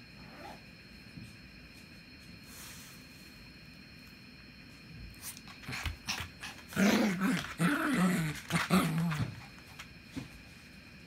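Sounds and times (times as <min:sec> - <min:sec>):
dog play-growling: 0:05.4 - 0:09.8.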